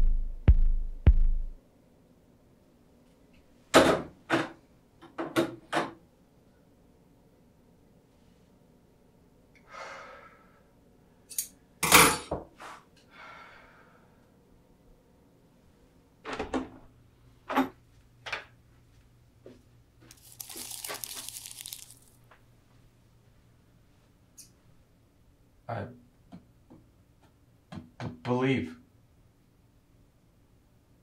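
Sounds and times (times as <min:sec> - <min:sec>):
rustling: 0:20.1 - 0:22.2.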